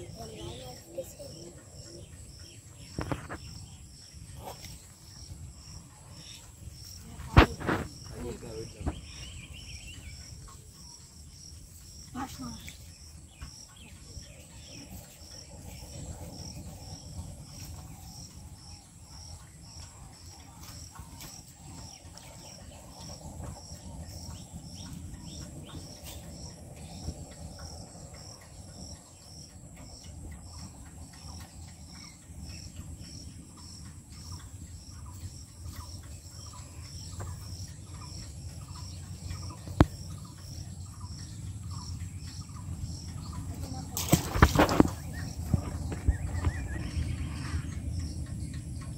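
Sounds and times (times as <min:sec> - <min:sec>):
insect chirping: 0:00.0 - 0:48.9
bird calling: 0:34.1 - 0:48.9
low rumble: 0:44.7 - 0:48.9.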